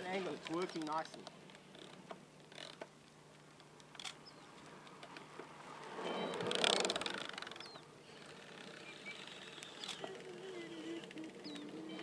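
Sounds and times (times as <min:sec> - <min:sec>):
bicycle tyre noise: 0:05.6 - 0:11.2.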